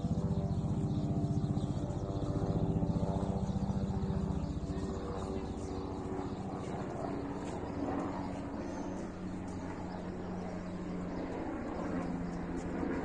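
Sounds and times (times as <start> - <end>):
motor engine running: 0.0 - 8.8.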